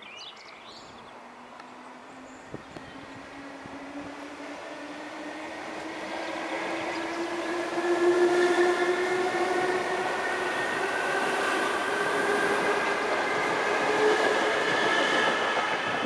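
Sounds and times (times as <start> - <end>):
electric train whining: 0.8 - 16.0.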